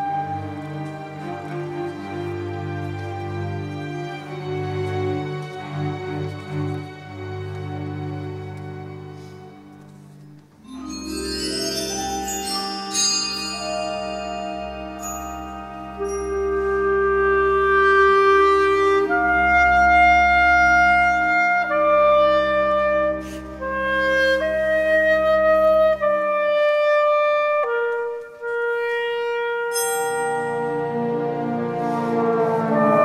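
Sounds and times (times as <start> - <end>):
clarinet playing long notes: 0.0 - 2.5, 10.6 - 33.0
low orchestral accompaniment: 0.0 - 33.0.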